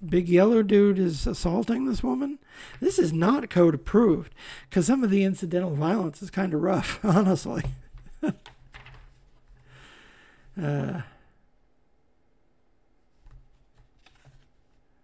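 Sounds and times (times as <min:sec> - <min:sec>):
person sighing: 0:09.7 - 0:11.4.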